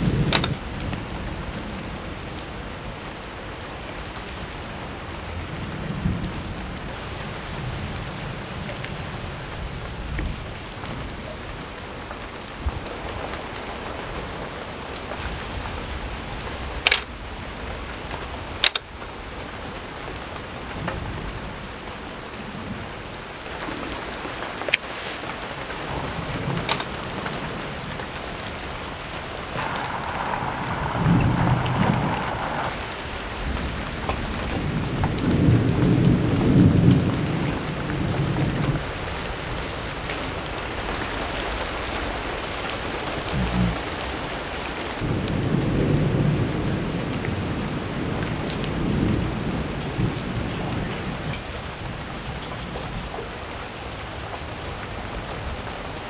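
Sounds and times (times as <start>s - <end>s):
thunder rumbling: 0.0s - 2.6s, 25.5s - 52.5s
steady rain: 0.0s - 56.0s
sharp click: 18.6s - 18.8s.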